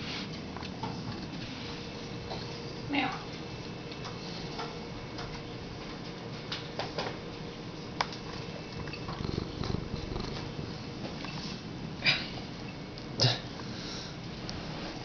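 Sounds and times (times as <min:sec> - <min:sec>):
cat purring: 0:08.4 - 0:11.8.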